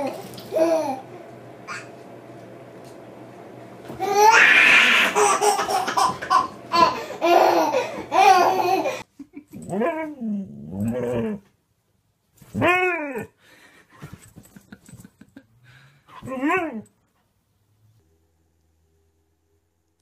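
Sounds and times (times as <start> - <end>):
baby belly-laughing: 4.0 - 9.0.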